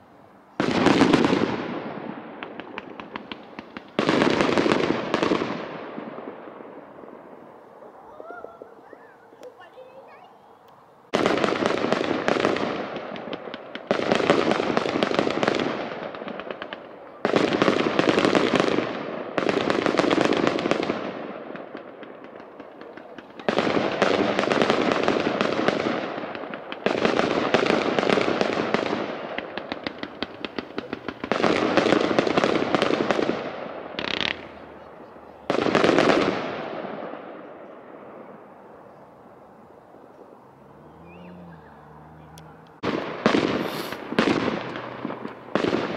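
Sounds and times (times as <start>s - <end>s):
firework crackling: 0.0s - 45.9s
firework shells bursting: 21.8s - 34.8s, 42.7s - 45.9s.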